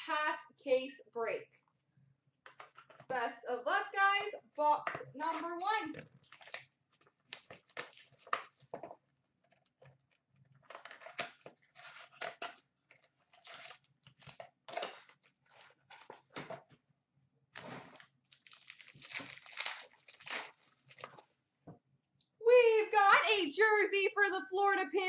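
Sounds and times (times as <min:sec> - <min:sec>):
packaging crinkling and tearing: 0:06.1 - 0:08.7, 0:09.6 - 0:16.3, 0:17.6 - 0:21.3.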